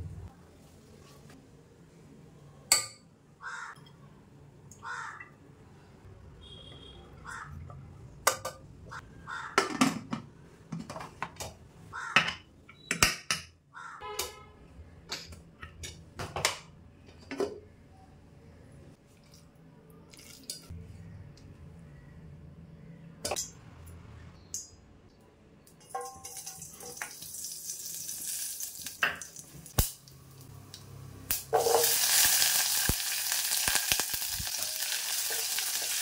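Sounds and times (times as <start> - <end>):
crows cawing: 3.4 - 3.8, 4.8 - 5.4, 7.2 - 7.6, 8.9 - 9.7, 11.9 - 12.4, 13.7 - 14.0
metal pot lid clinking: 25.8 - 27.0.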